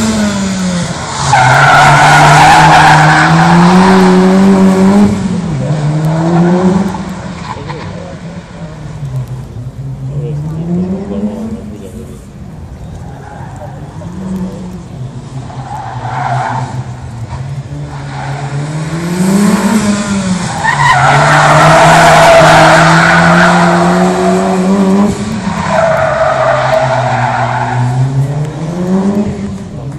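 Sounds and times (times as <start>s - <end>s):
turbocharged engine revving: 18.3s - 25.5s.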